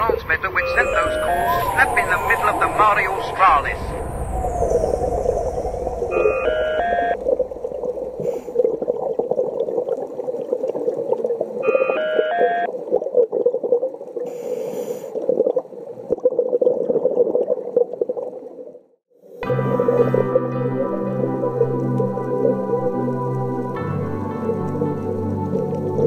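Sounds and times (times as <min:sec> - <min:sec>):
muffled underwater crackling: 0:00.0 - 0:18.9
three-note electronic beep: 0:00.5 - 0:07.2.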